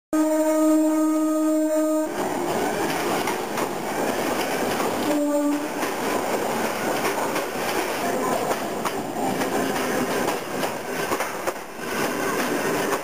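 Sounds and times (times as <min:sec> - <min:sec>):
train horn blast: 0:00.1 - 0:02.2, 0:05.0 - 0:05.8
electric train passing: 0:01.9 - 0:13.0.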